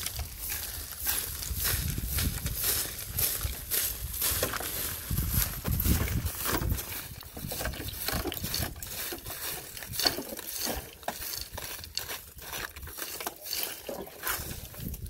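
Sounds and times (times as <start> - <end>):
dry weeds rustling and crackling: 0.0 - 15.0
footsteps crunching on gravel: 0.0 - 15.0.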